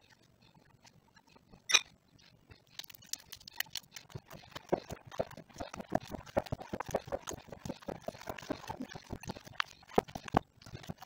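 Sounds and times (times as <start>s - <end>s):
hands kneading sticky dough: 2.6s - 11.0s.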